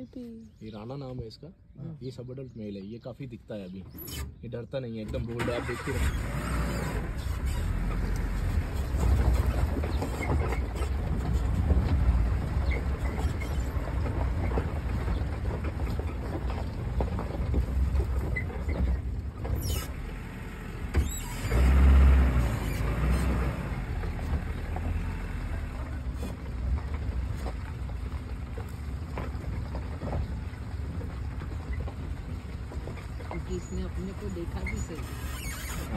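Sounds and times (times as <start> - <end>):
car engine running: 5.4 - 35.9.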